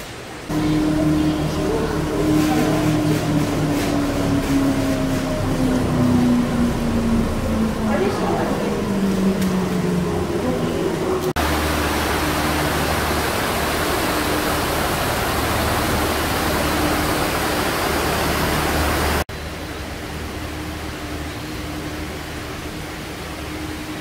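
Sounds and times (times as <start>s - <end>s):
steady low hum: 0.4s - 24.0s
stream rushing over rocks: 11.4s - 19.3s.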